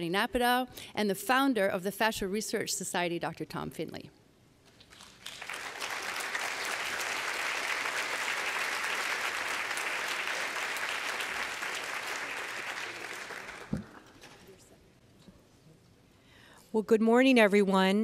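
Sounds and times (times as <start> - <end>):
audience applauding: 4.9 - 14.2.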